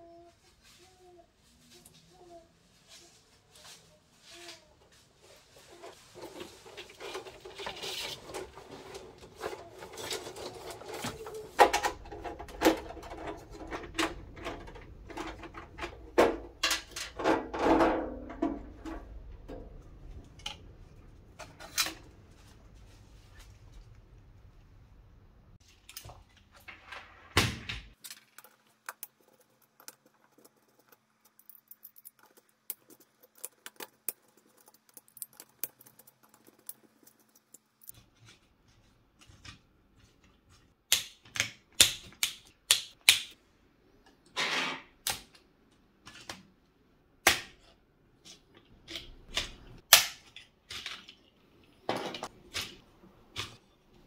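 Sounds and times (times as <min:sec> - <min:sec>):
screwdriver being handled: 0:28.0 - 0:38.0
plastic circuit breakers clicking: 0:40.9 - 0:43.4, 0:48.8 - 0:51.1.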